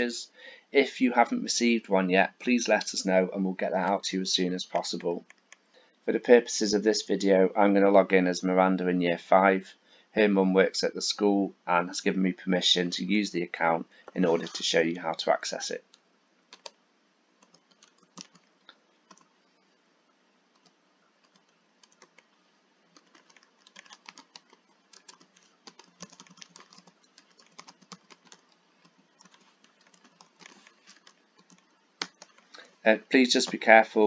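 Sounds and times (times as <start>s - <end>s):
typing on computer keyboard: 16.5s - 16.8s, 17.4s - 18.5s, 20.6s - 22.3s, 23.0s - 32.4s.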